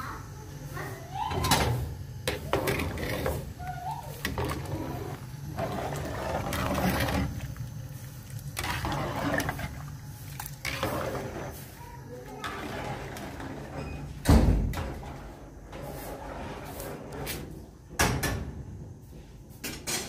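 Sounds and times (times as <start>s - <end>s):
ladle scraping metal pot: 2.3s - 3.6s, 4.2s - 7.6s, 8.5s - 11.7s
liquid sloshing: 4.1s - 11.8s.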